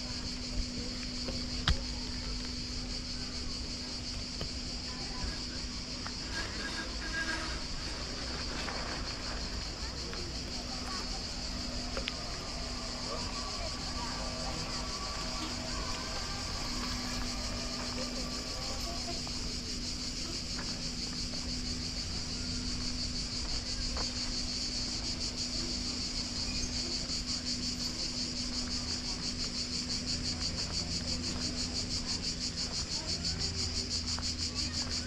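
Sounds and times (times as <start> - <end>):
cicadas buzzing: 0.0 - 35.0.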